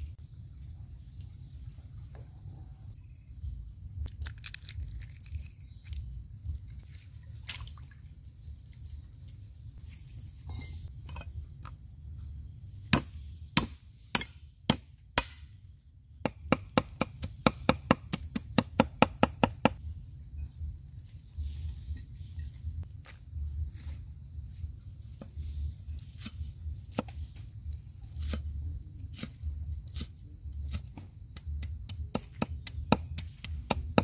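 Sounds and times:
cleaver chopping on wooden board: 16.2s - 19.8s, 30.7s - 34.0s.

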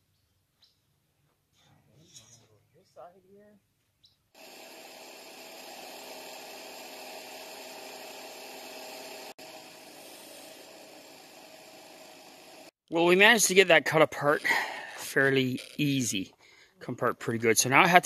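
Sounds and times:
cutting torch hissing: 4.4s - 12.8s.

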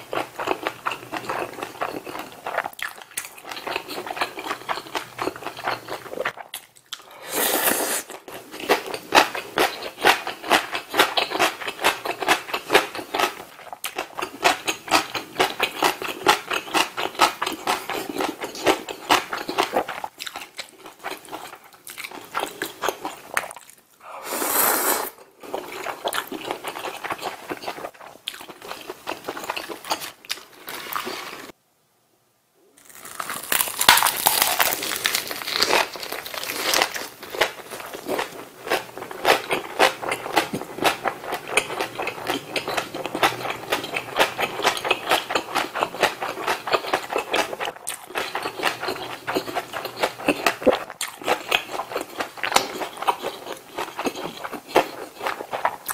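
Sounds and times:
wet chewing and mouth smacks: 0.4s - 7.1s, 8.6s - 24.0s, 36.5s - 55.9s
noodle slurp: 7.0s - 8.2s, 24.0s - 25.3s.

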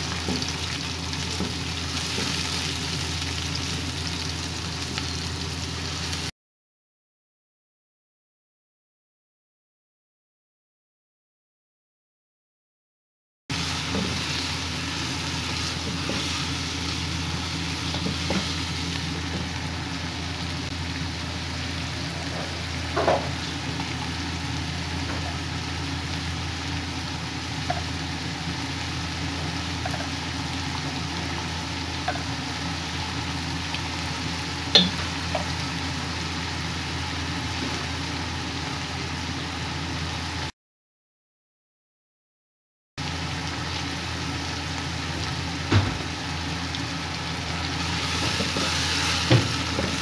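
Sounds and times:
vegetables sizzling in a wok: 0.0s - 6.3s, 13.5s - 40.5s, 43.0s - 50.0s.

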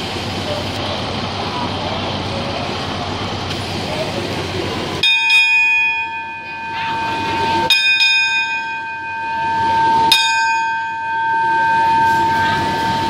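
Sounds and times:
station bell ringing: 4.7s - 13.0s.

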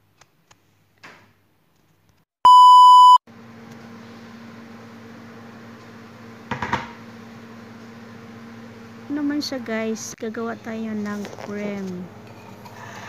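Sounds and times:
loud electronic beep: 2.5s - 3.2s.

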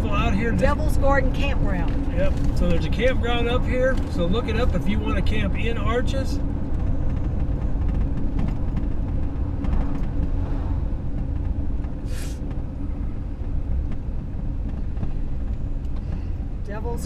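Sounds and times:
engine and road rumble: 0.0s - 17.0s
brief hiss: 12.0s - 12.4s.

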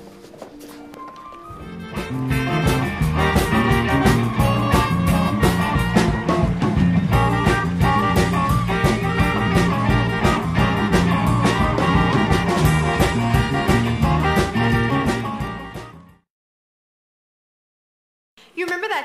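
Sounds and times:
rock and roll dance music: 1.6s - 16.2s.

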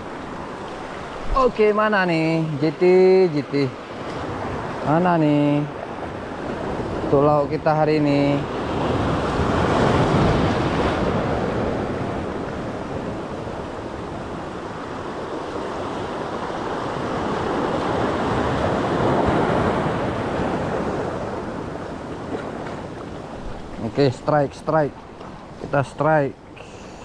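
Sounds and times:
surf washing over rocks: 0.0s - 27.0s.

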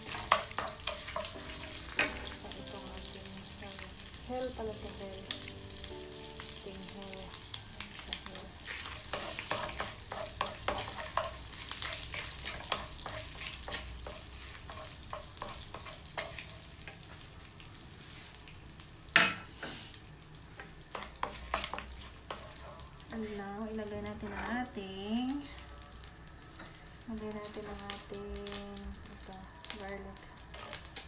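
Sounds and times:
wooden spatula stirring: 0.0s - 2.5s, 8.3s - 17.4s, 20.6s - 22.9s, 30.5s - 31.0s
spices sizzling in hot oil: 0.0s - 31.0s.

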